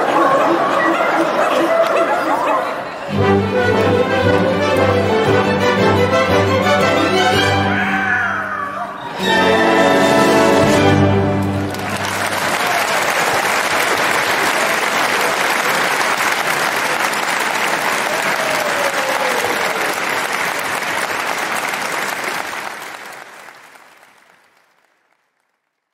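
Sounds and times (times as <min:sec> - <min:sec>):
audience applauding: 0:09.1 - 0:25.9.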